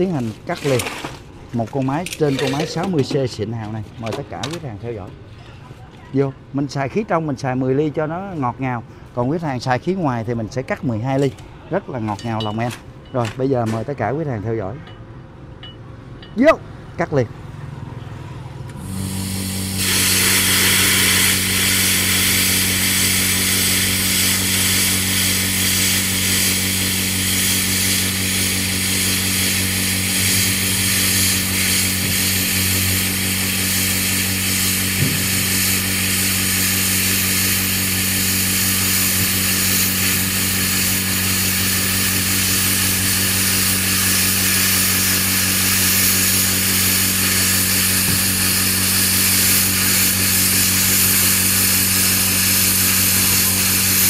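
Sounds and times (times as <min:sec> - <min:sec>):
air compressor motor humming: 0:18.4 - 0:54.0
plasma cutter hissing: 0:18.8 - 0:54.0.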